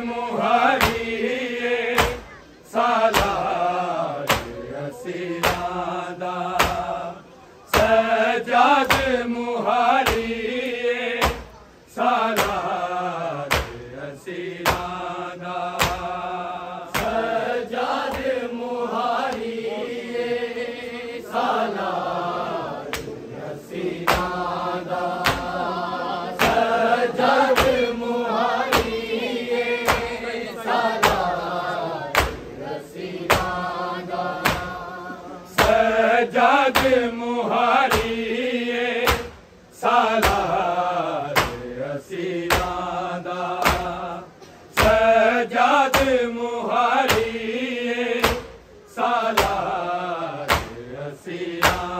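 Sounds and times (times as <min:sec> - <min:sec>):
men chanting a lament: 0:00.0 - 0:51.9
chest-beating thumps: 0:29.8 - 0:30.3, 0:32.1 - 0:32.6.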